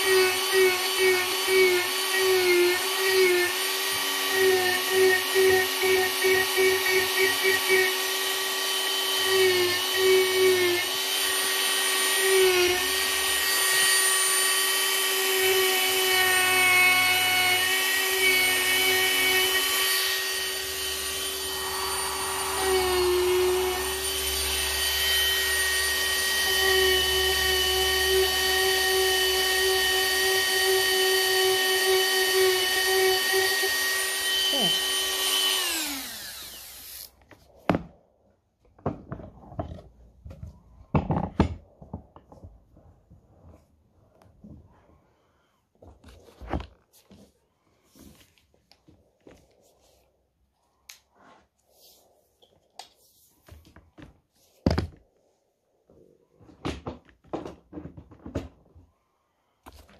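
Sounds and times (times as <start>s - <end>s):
rotary tool carving wood: 0.0s - 37.4s.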